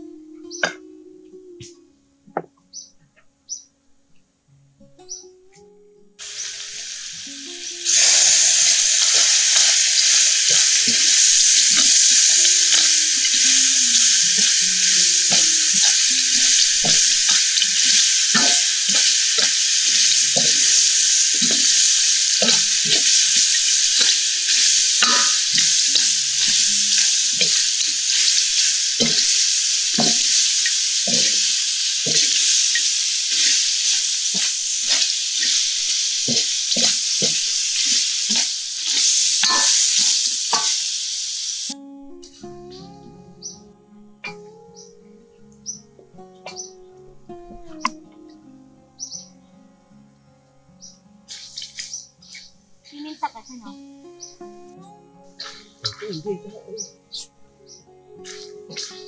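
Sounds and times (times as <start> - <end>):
crabs sizzling in hot oil: 6.2 - 41.8, 49.0 - 49.3, 50.8 - 52.5, 57.7 - 59.0
spatula scraping a wok: 7.9 - 40.8.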